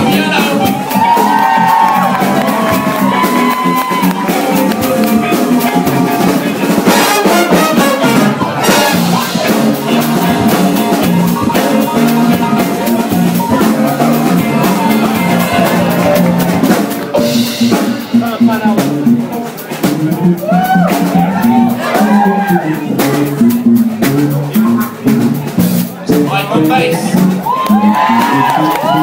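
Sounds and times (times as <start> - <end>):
brass section holding chords: 0.0 - 19.4
drum kit steady beat: 0.0 - 29.0.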